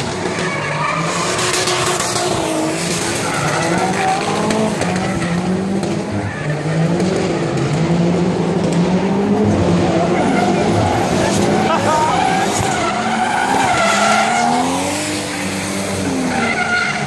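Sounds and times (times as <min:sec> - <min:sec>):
race car engine revving: 0:00.0 - 0:17.0
tyres squealing: 0:10.0 - 0:17.0.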